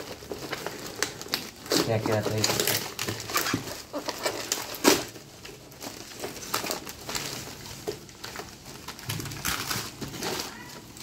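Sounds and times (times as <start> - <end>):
packaging crack: 0.0 - 11.0
packaging rustling and crinkling: 0.0 - 11.0.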